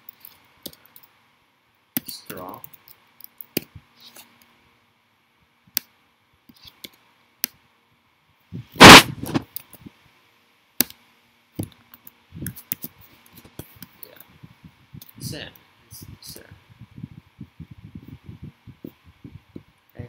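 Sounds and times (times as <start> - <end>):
loud thump: 8.8 - 9.4.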